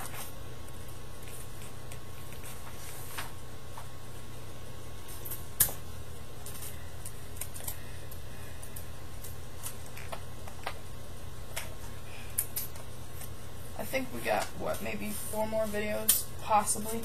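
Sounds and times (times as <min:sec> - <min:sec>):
paper crackling and tapping: 0:00.0 - 0:04.0, 0:06.4 - 0:10.9
steady low hum: 0:00.0 - 0:17.0.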